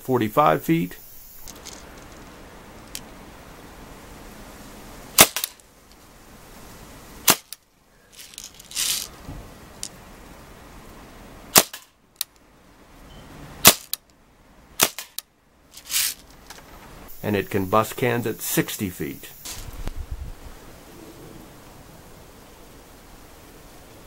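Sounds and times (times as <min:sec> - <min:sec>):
bb rifle firing pops: 0:05.2 - 0:05.6, 0:11.6 - 0:11.9, 0:14.8 - 0:15.2.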